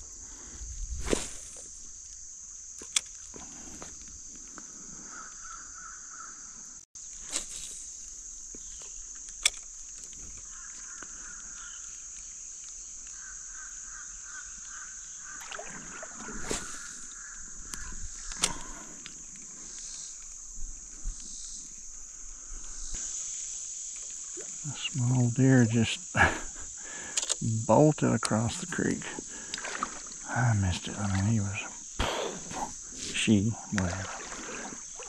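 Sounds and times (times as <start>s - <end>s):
high-pitched insect chorus: 0.0s - 35.0s
footsteps wading over river rocks: 32.4s - 35.0s.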